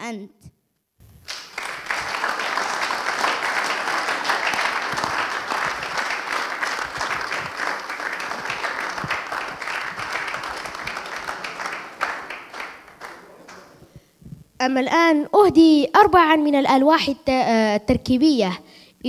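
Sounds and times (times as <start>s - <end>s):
audience applauding: 1.2s - 13.8s.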